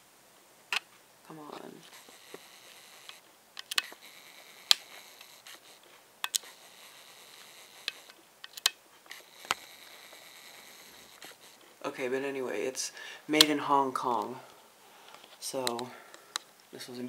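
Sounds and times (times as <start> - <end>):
faint steady hiss: 0.0 - 17.0
camera clicks and taps: 1.9 - 11.6.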